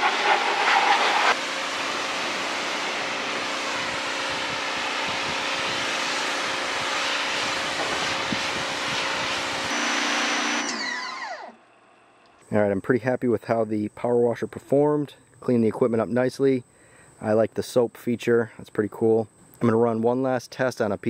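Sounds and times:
pressure washer spray hissing: 0.0 - 9.7
pressure washer motor hum: 0.0 - 12.2.

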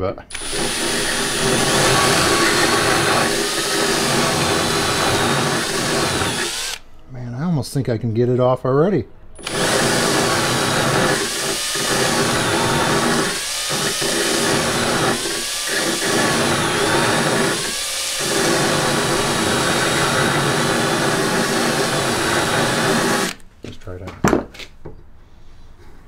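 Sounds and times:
power drill cutting threads: 0.3 - 6.8, 9.4 - 23.4.

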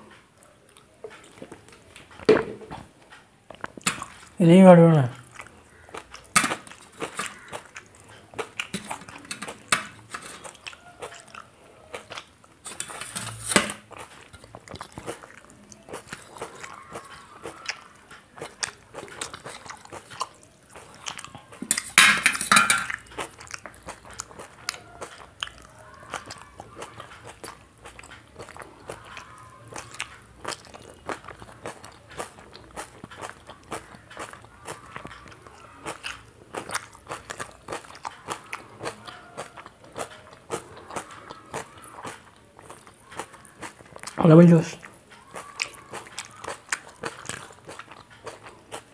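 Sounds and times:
person chewing food: 0.0 - 48.9
clatter on steel plates: 21.7 - 22.9.

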